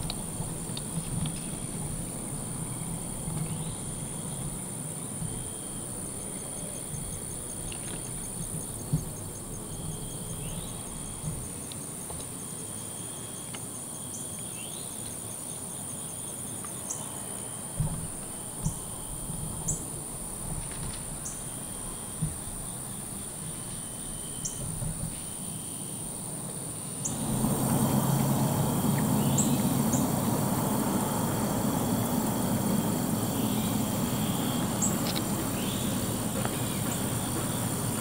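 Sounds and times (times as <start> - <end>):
pulsing insect trill: 0.0 - 14.9, 16.9 - 38.0
insects droning: 0.0 - 38.0
short insect chirps: 5.3 - 11.8, 27.0 - 38.0.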